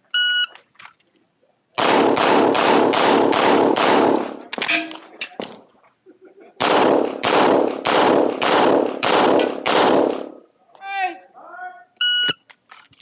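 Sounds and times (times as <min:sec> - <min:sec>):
handgun shots: 0:01.8 - 0:05.4, 0:06.6 - 0:10.4.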